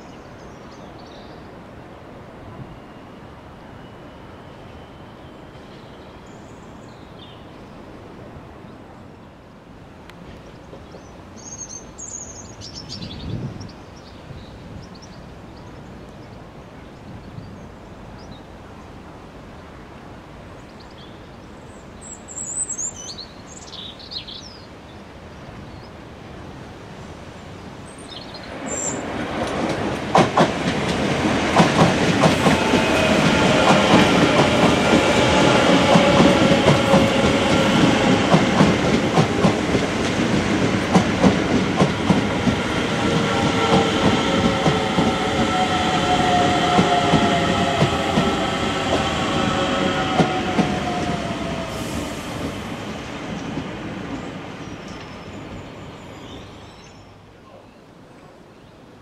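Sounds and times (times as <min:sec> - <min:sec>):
train wheels clickety-clack: 0:29.0 - 0:55.2
train whine falling in pitch: 0:42.2 - 0:52.5.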